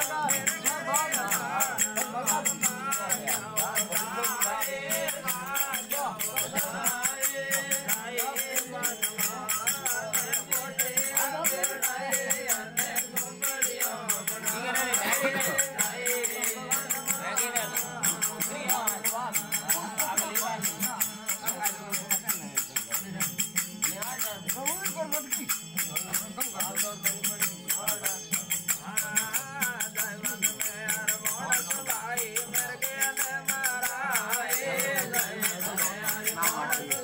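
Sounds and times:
jingling hand percussion: 0:00.0 - 0:37.0
man singing: 0:00.0 - 0:37.0.

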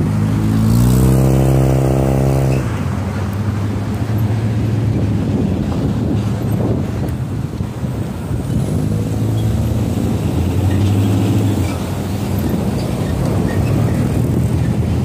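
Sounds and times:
car engines in slow traffic: 0:00.0 - 0:15.0.

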